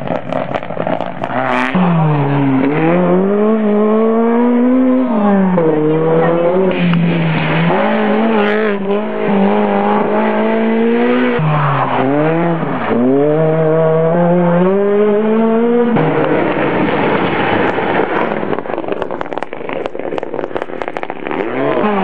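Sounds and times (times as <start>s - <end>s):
rally car engine revving: 0.0s - 22.0s
rushing noise: 6.6s - 12.9s, 16.0s - 22.0s.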